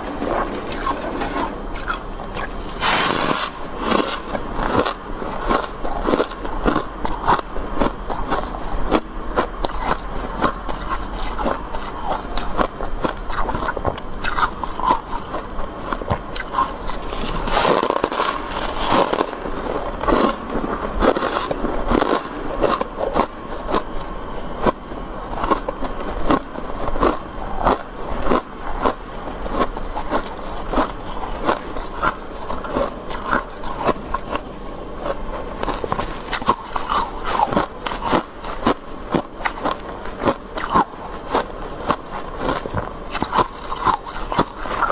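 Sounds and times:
frost scraping: 0.0 - 4.2, 16.4 - 20.4
crunching and chewing frost: 0.0 - 44.9.

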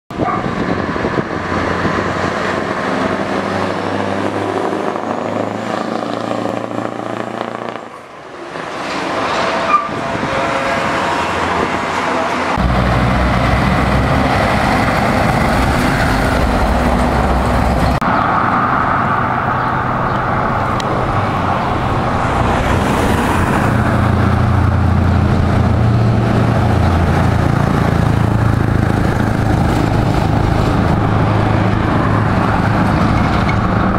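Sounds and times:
truck exhaust driving past: 12.5 - 33.9.

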